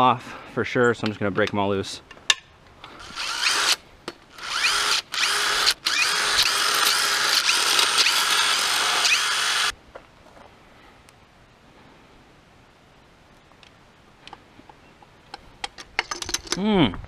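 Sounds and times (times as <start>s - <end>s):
cordless drill whirring: 3.0s - 9.7s.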